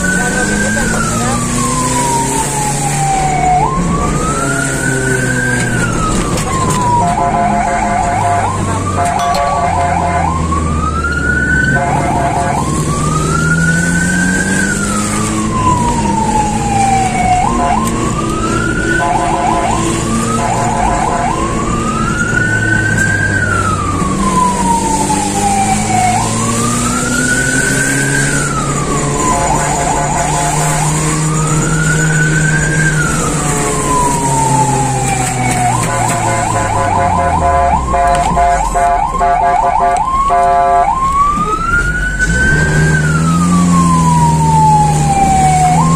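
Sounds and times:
siren wailing: 0.0 - 45.9
siren yelp: 0.0 - 45.9
vehicle engine: 0.0 - 45.9.

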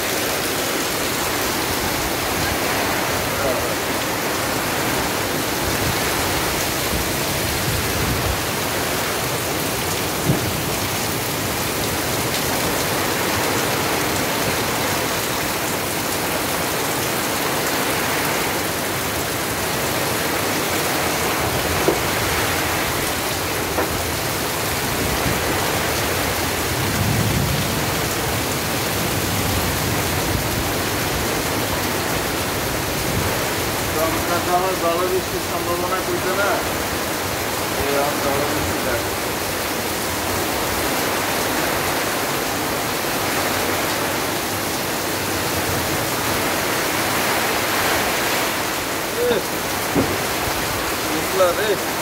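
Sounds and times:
runoff streaming: 0.0 - 26.8, 33.3 - 52.0
heavy rain through trees: 0.0 - 52.0
rain on tarpaulin and metal roof: 0.0 - 52.0.

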